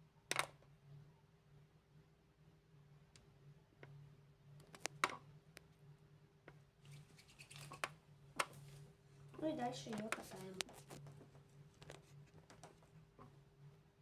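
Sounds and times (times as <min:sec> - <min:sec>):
low steady hum: 0:00.0 - 0:14.0
small clicks and taps: 0:04.6 - 0:05.7, 0:09.8 - 0:13.3.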